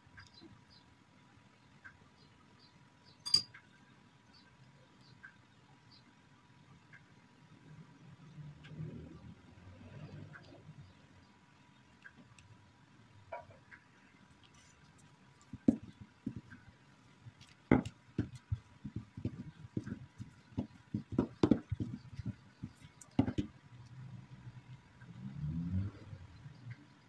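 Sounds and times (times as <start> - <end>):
rolling pin knocking on countertop: 15.5 - 16.6, 17.7 - 23.5.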